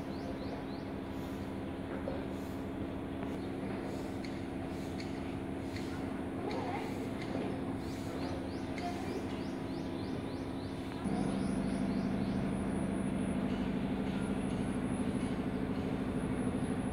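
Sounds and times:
low mechanical hum: 0:00.0 - 0:16.9.

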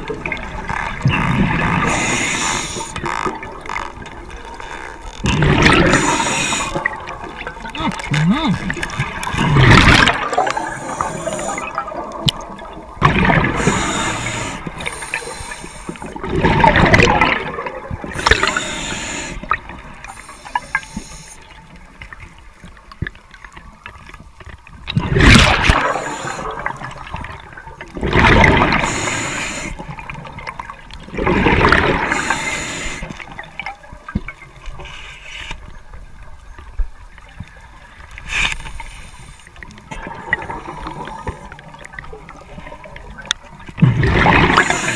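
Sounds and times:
exhaled bubbles gushing: 0:00.0 - 0:20.8, 0:24.9 - 0:34.5, 0:39.8 - 0:44.9.

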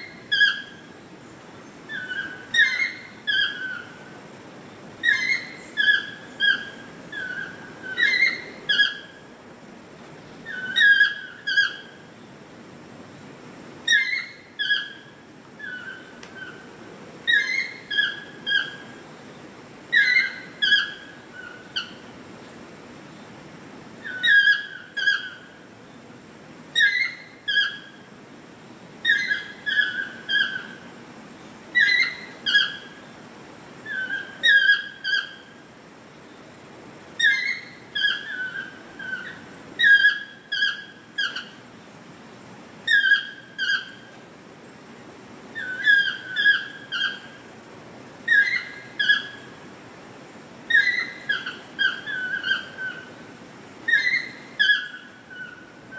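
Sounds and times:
toucan yelping call: 0:00.0 - 0:01.0, 0:01.9 - 0:04.1, 0:05.0 - 0:09.3, 0:10.4 - 0:12.1, 0:13.8 - 0:19.0, 0:19.9 - 0:22.1, 0:24.0 - 0:25.6, 0:26.7 - 0:28.1, 0:29.0 - 0:30.9, 0:31.7 - 0:33.0, 0:33.8 - 0:35.6, 0:37.2 - 0:41.6, 0:42.8 - 0:44.1, 0:45.5 - 0:47.5, 0:48.2 - 0:49.6, 0:50.7 - 0:53.2, 0:53.8 - 0:55.8.

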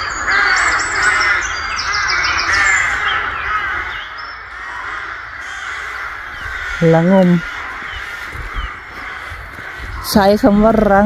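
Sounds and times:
crows cawing: 0:00.0 - 0:11.0
small birds chirping: 0:00.0 - 0:11.0.

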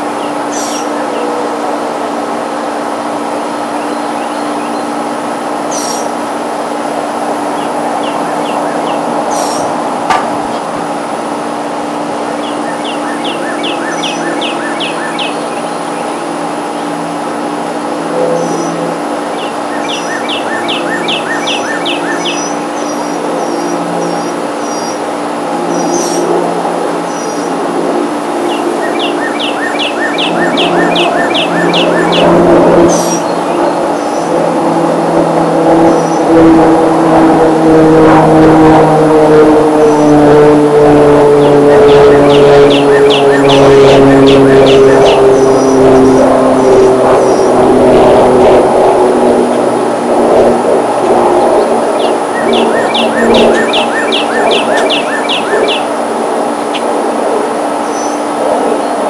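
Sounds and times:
songbird singing: 0:00.0 - 0:01.7, 0:02.9 - 0:06.2, 0:07.4 - 0:09.8, 0:12.0 - 0:26.4, 0:27.0 - 0:27.6, 0:28.2 - 0:34.5, 0:35.9 - 0:36.3, 0:41.4 - 0:46.2, 0:47.1 - 0:47.6, 0:51.6 - 0:57.0, 0:57.7 - 0:59.0
propeller aircraft droning: 0:00.0 - 0:59.0
steady mechanical hum: 0:00.0 - 0:59.0
bird chirping: 0:00.1 - 0:01.4, 0:03.8 - 0:05.0, 0:05.7 - 0:06.1, 0:07.6 - 0:09.7, 0:12.3 - 0:16.9, 0:18.4 - 0:25.0, 0:25.7 - 0:26.3, 0:27.1 - 0:27.5, 0:28.4 - 0:34.3, 0:41.4 - 0:45.9, 0:51.9 - 0:55.9, 0:57.8 - 0:59.0.

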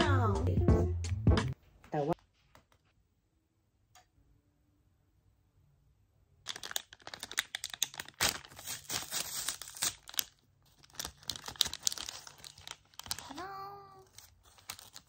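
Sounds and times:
packaging crinkling: 0:06.5 - 0:15.0.

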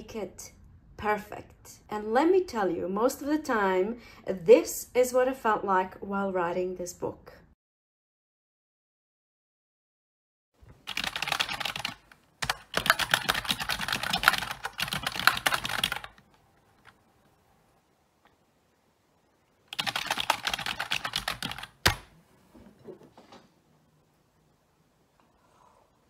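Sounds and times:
fast typing on keyboard: 0:10.8 - 0:16.3, 0:19.7 - 0:22.1.

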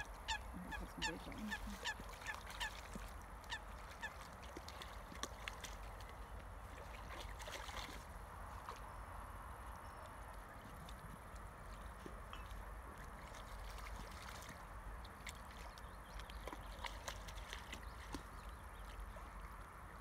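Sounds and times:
geese honking: 0:00.0 - 0:02.8
dogs splashing in water: 0:00.6 - 0:08.9, 0:10.2 - 0:20.0.

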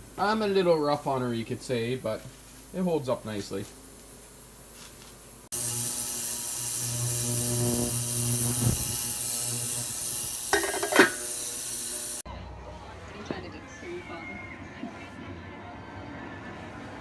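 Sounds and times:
ultrasonic cleaner hum and hiss: 0:00.0 - 0:12.2.

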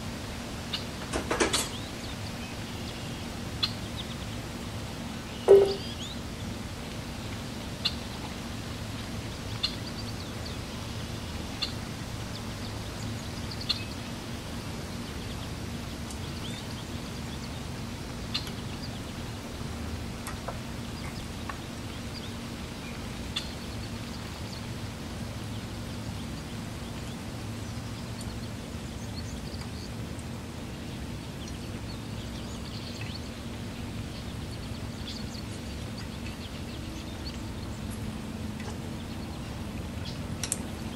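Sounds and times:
steady low hum: 0:01.7 - 0:40.9
high bird chirps: 0:05.4 - 0:06.2.

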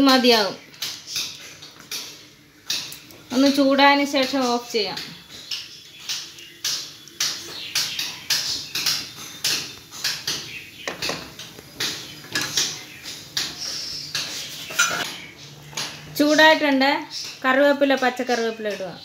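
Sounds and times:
curry heating in a pan: 0:00.1 - 0:15.1
wooden spatula tapping a pan: 0:05.5 - 0:14.4.

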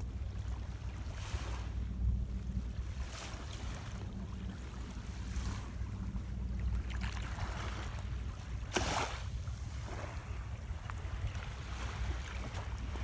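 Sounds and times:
small waves on sandy beach: 0:00.0 - 0:13.0
wind on microphone: 0:00.0 - 0:13.0.

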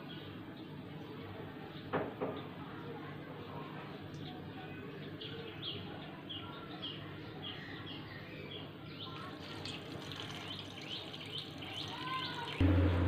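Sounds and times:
small birds chirping: 0:00.0 - 0:12.6
water pouring into a pot: 0:09.2 - 0:12.6.

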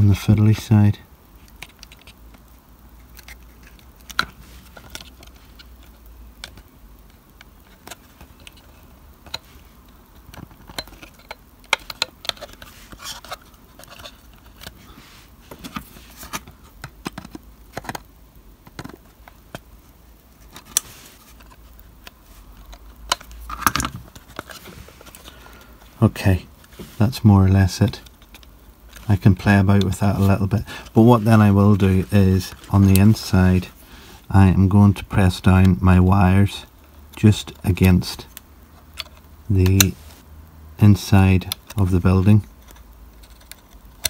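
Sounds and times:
fingers handling plastic model: 0:01.4 - 0:35.9.

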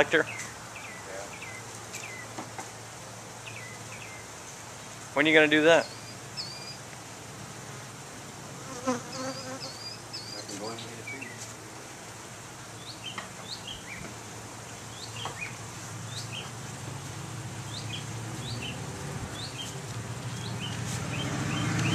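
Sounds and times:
bees humming: 0:00.2 - 0:21.9
high bird chirps: 0:05.8 - 0:06.8, 0:09.1 - 0:11.4, 0:17.7 - 0:21.9.

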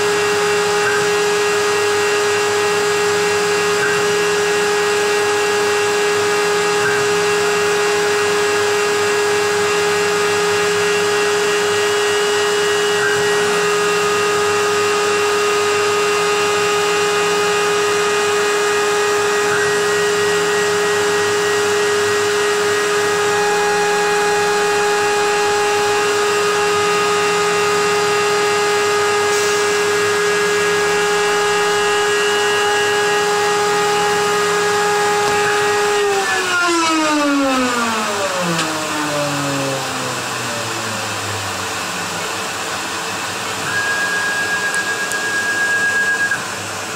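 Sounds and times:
milling spindle high whine: 0:00.0 - 0:46.9
dust extraction vacuum hiss: 0:29.2 - 0:30.8.

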